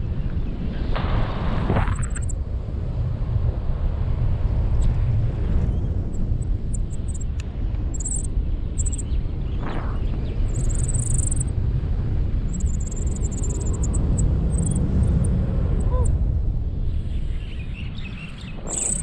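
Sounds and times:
wind rushing over microphone: 0.0 - 19.0
faint high chirps: 8.0 - 9.1, 10.5 - 11.4, 12.5 - 15.2, 18.3 - 19.0.

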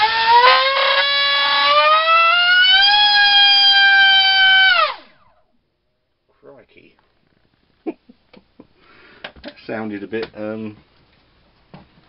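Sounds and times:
electric motor high whine: 0.0 - 5.4.

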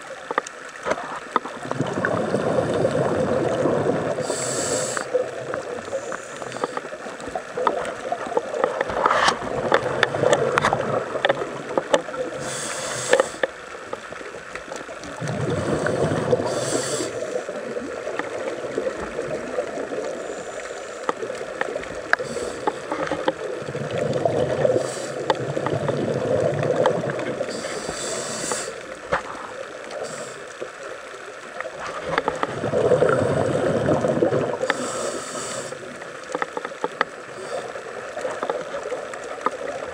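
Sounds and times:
bubbling gurgles underwater: 0.0 - 39.9
sharp crackling clicks: 0.1 - 2.0, 3.6 - 33.6, 34.2 - 39.9
scuba regulator hissing: 4.2 - 5.1, 12.4 - 13.4, 15.6 - 17.4, 27.5 - 28.8, 34.7 - 35.8.

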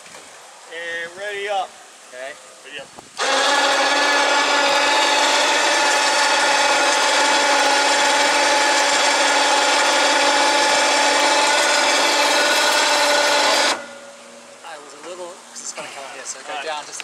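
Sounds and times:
small electric motor whining: 3.2 - 14.0.

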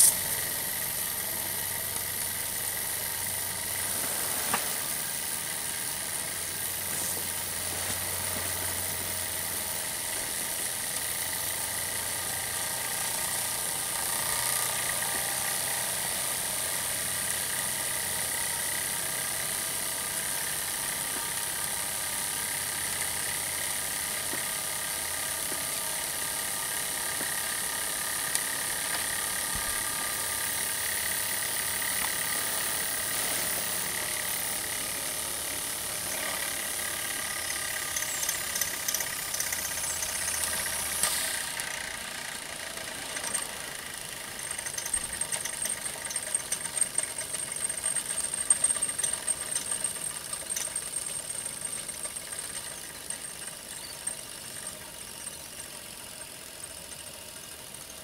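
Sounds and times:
steam jets hissing: 0.0 - 43.8
rotor whirring rattle: 0.0 - 58.0.

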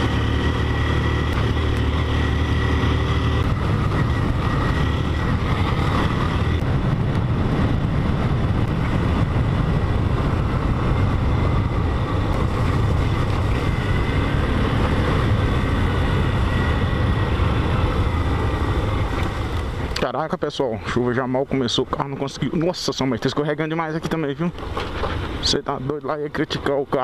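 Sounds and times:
motorcycle engine running: 0.0 - 20.0
wind and road noise: 0.0 - 27.0.

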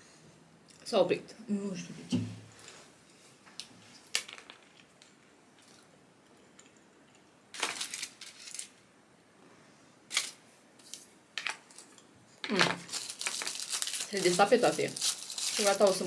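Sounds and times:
crackling: 10.1 - 16.0.

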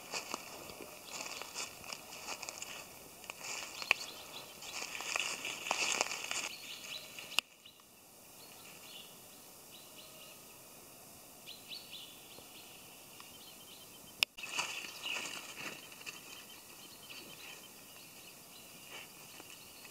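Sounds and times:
footsteps crackling through dry leaves: 0.0 - 7.4, 14.4 - 16.5
twigs clicking: 0.1 - 6.5, 14.3 - 16.4
faint bird chirps: 0.2 - 10.7, 11.4 - 19.9.

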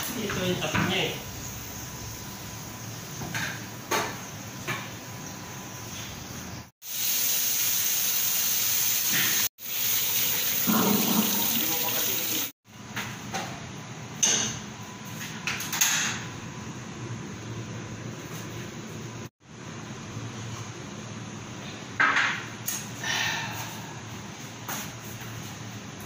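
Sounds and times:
tap water rushing into sink: 9.0 - 12.5.

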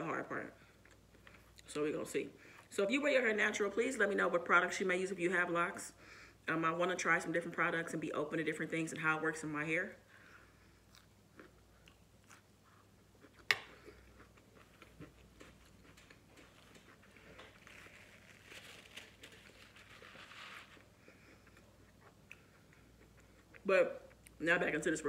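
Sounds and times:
chewing with wet mouth clicks: 10.9 - 17.5, 21.2 - 24.4
paper napkin rustling: 16.4 - 20.9.

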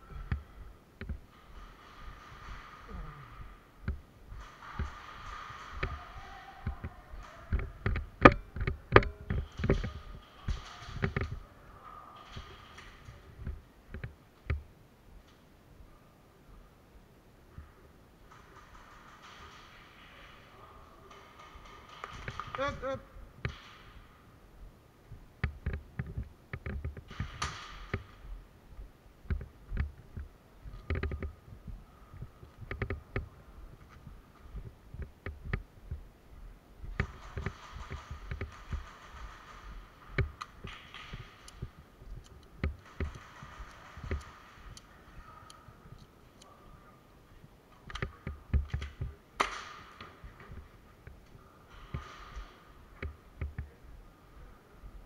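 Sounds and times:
airsoft clicks and knocks: 0.1 - 11.4, 12.2 - 15.4, 21.1 - 24.2, 25.1 - 36.1, 36.8 - 46.5, 47.7 - 53.8
thumps: 29.2 - 46.4.

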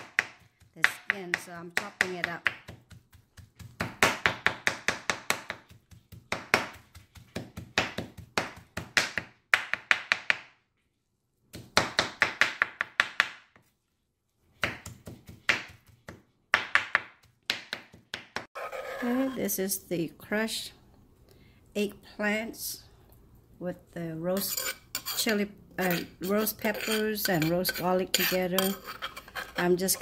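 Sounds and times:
knife chopping on wooden board: 0.0 - 10.5, 14.6 - 18.5.

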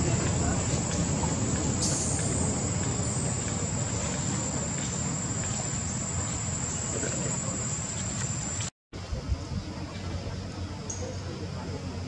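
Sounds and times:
high-pitched insect drone: 0.0 - 8.7.

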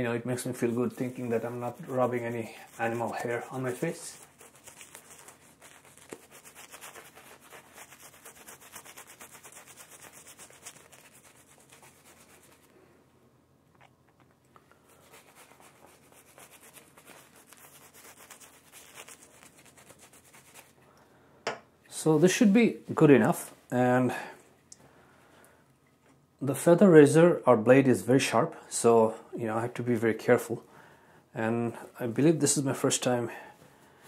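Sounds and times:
shaving brush rubbing on stubble: 0.3 - 12.7, 14.9 - 20.8.

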